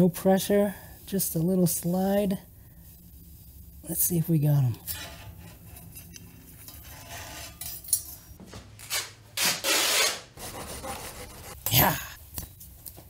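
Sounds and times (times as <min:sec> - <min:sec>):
metal tool clinking: 0:07.6 - 0:08.3.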